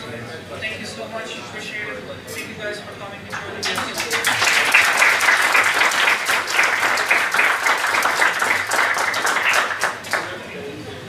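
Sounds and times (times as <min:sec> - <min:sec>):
audience applauding: 0:03.6 - 0:10.4.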